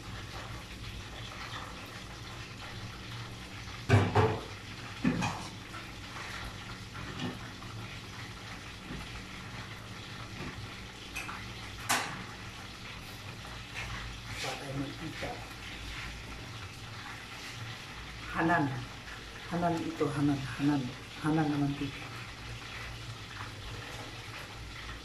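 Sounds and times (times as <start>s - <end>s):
chicken sizzling in oil: 0.0s - 25.0s
metal cookware clanking: 3.9s - 5.6s, 11.2s - 12.3s.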